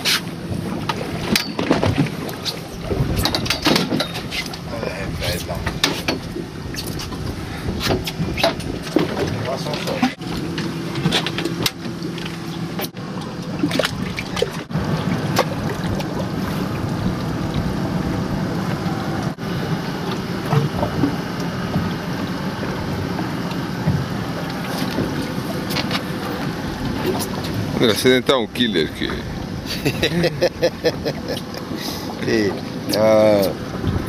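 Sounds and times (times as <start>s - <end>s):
water lapping against boat hull: 0.0s - 34.0s.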